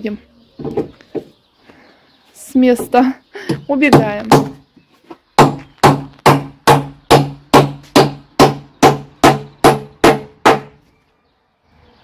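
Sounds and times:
hammer nailing wooden planks: 3.5s - 4.6s, 5.4s - 10.8s.

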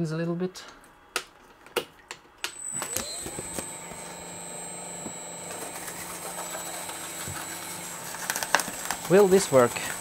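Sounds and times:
paper shredder motor whine: 2.4s - 10.0s.

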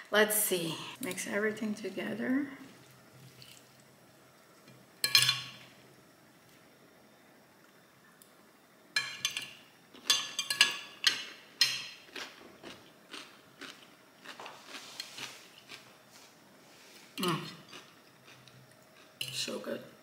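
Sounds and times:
crisp crunching and chewing: 12.1s - 15.9s.

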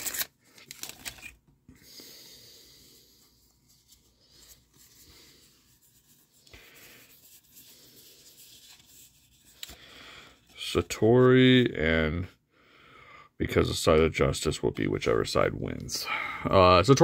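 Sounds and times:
trading cards rubbing together: 3.3s - 9.8s.

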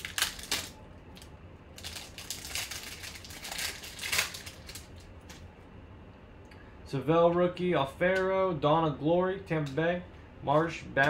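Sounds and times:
foil wrapper crinkling and tearing: 0.0s - 5.4s.

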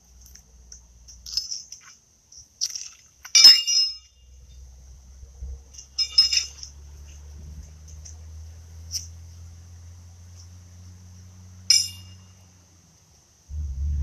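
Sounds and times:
horseshoes clanking: 1.1s - 4.3s, 5.7s - 8.2s, 11.7s - 12.4s.

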